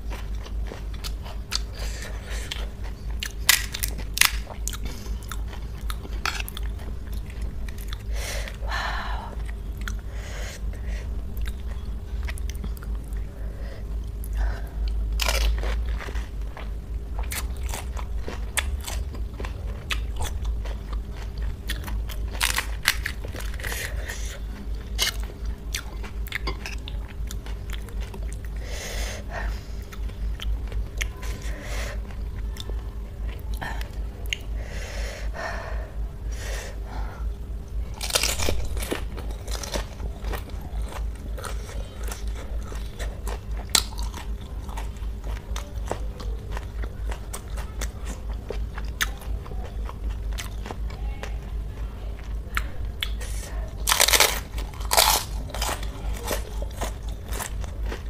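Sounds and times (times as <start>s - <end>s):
chewing: 0.0s - 8.6s, 9.3s - 10.1s, 14.0s - 28.6s, 29.3s - 34.5s, 37.9s - 58.0s
steady low hum: 0.0s - 58.0s
crunching bites of crisp shells: 2.4s - 8.1s, 15.1s - 28.6s, 37.9s - 50.9s, 53.8s - 58.0s.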